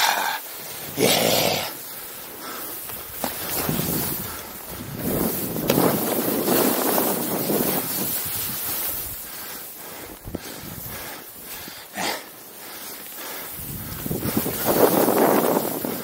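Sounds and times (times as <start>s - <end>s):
skis scraping over snow: 0.1s - 16.0s
wind rushing over microphone: 2.9s - 11.7s, 13.4s - 16.0s.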